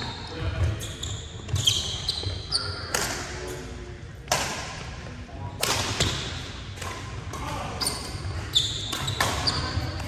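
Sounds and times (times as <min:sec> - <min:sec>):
shoes squeaking on court: 0:00.0 - 0:03.7, 0:07.8 - 0:10.0
racket hitting shuttlecock: 0:02.8 - 0:03.4, 0:04.2 - 0:04.9.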